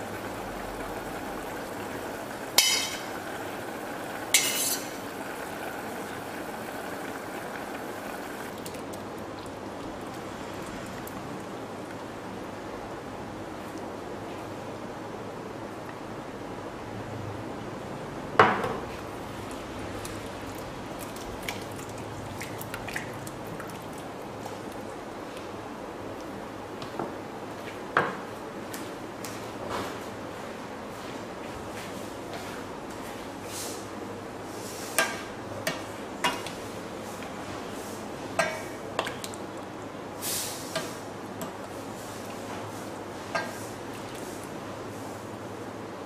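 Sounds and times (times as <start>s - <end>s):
steady background hiss: 0.0s - 46.0s
ladle clinking on metal saucepan: 2.6s - 3.1s, 4.4s - 4.9s
soup splashing into bowl: 20.0s - 24.7s.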